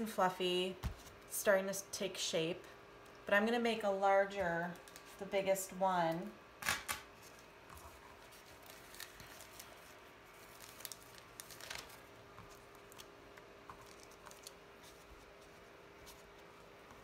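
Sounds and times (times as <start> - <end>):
faint steady hum: 0.0 - 17.0
plastic bag rustling: 7.2 - 16.9.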